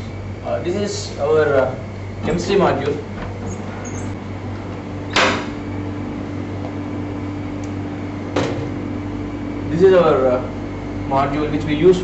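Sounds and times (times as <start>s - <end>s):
higher steady hum: 0.0s - 12.0s
steady machine hum: 0.0s - 12.0s.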